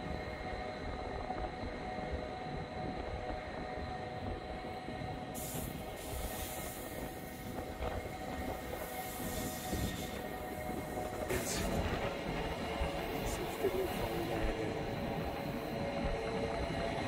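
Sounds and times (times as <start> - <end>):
train carriage rumbling: 0.0 - 17.0
train wheels squealing on rails: 5.3 - 17.0.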